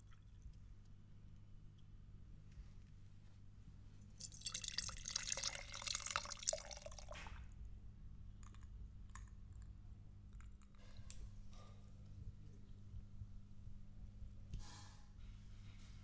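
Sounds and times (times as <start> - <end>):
liquid pouring into glass: 4.2 - 7.2.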